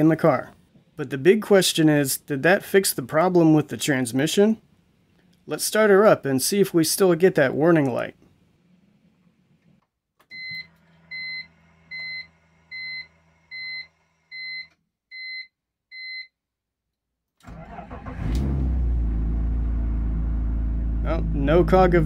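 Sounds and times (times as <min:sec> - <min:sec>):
car engine starting and idling: 0:17.4 - 0:22.0.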